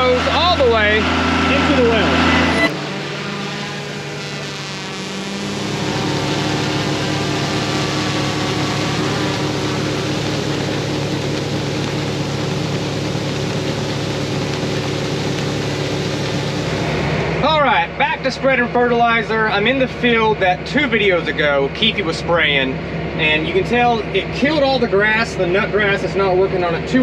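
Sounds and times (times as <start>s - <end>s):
tractor machinery hum: 0.0s - 26.9s
granular fertilizer pouring hiss: 5.2s - 17.1s.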